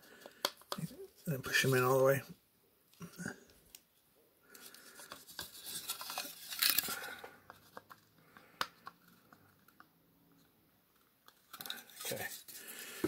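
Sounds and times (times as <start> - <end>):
plastic toy pieces scraping: 4.6 - 7.9.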